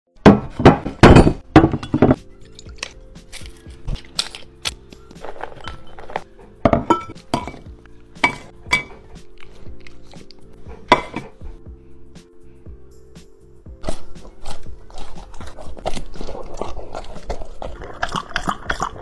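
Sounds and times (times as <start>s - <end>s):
background music: 0.2s - 19.0s
ceramic bowls clinking and knocking: 0.3s - 2.9s, 5.4s - 9.1s, 10.9s - 11.4s.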